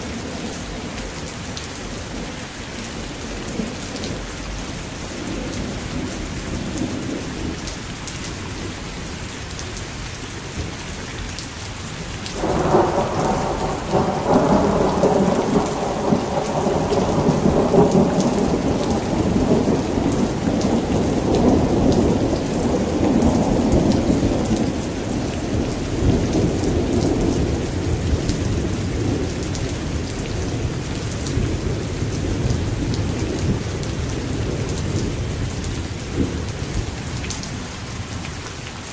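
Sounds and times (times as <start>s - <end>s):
steady rain: 0.0s - 38.9s
thunder rumbling: 12.4s - 37.4s.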